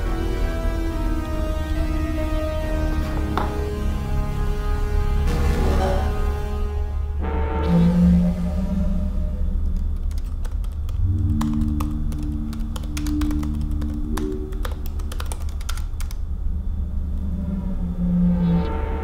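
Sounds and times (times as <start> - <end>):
low droning music: 0.0 - 19.0
laptop keyboard typing: 9.7 - 16.2.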